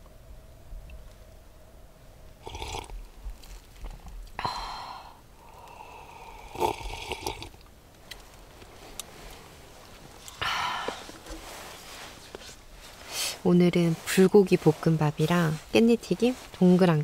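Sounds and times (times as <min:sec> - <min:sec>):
dishes rustling and clattering: 0:08.6 - 0:13.0.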